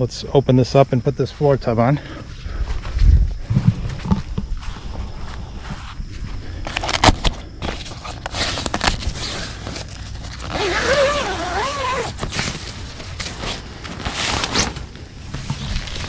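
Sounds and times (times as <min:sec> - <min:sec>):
nylon fabric rustling: 0:07.7 - 0:16.0.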